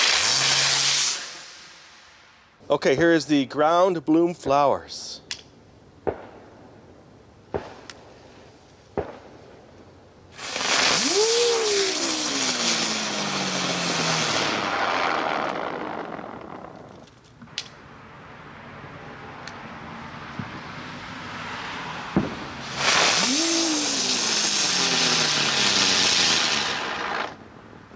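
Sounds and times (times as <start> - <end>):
firework hissing shower of sparks: 0.0 - 2.6, 10.4 - 16.8, 22.2 - 27.4
firework whine: 0.0 - 2.6, 10.3 - 17.2, 21.4 - 27.6.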